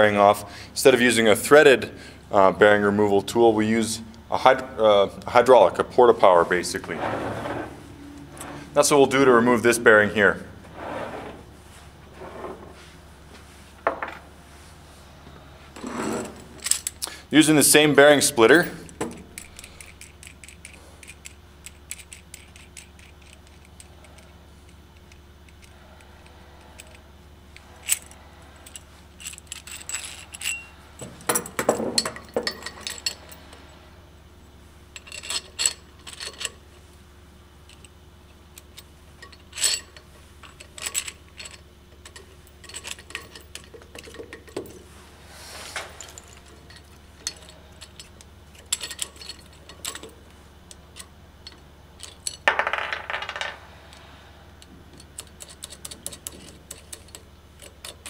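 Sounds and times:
metallic clinks and rattles: 16.2s - 17.1s, 18.5s - 33.8s, 35.0s - 36.7s, 38.6s - 44.9s, 45.8s - 58.0s.

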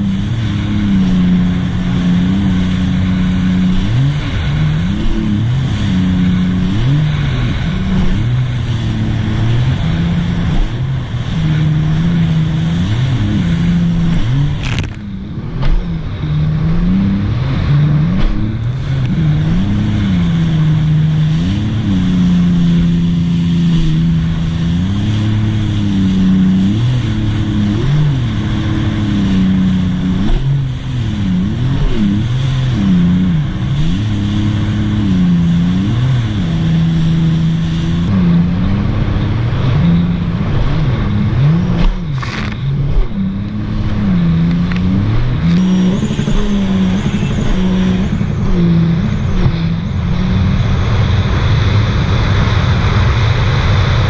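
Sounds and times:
watercraft engine revving: 0.0s - 54.0s.

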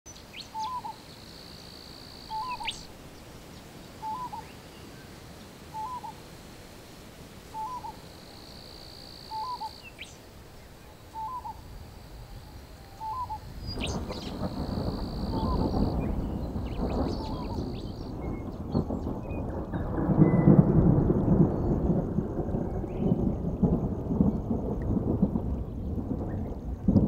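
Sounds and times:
bird two-note hooting call: 7.6s - 8.0s, 9.3s - 9.8s, 11.2s - 11.6s, 13.0s - 13.4s.

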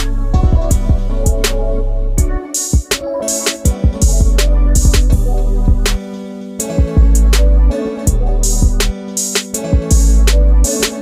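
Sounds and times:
deep bass notes: 0.0s - 2.4s, 4.0s - 6.0s, 6.9s - 8.9s, 9.9s - 10.7s.

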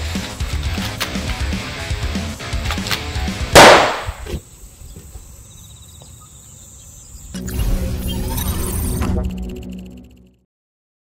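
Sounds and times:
loud gunshot: 3.5s - 4.2s.

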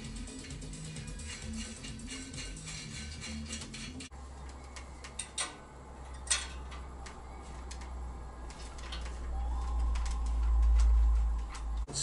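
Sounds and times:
low steady hum: 0.0s - 12.0s
light metal clicks and taps: 4.4s - 9.2s.

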